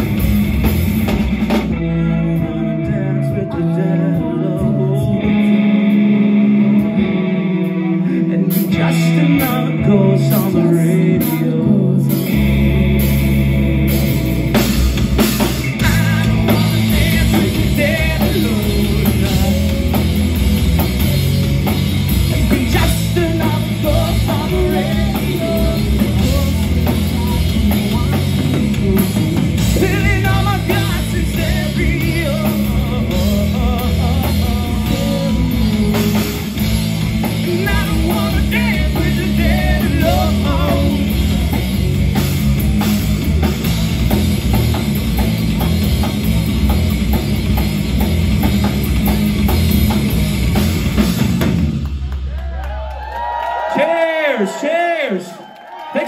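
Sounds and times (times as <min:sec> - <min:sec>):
live rock band: 0:00.0 - 0:56.0
man singing: 0:01.7 - 0:06.3, 0:07.9 - 0:14.0, 0:15.8 - 0:21.2, 0:22.3 - 0:41.6.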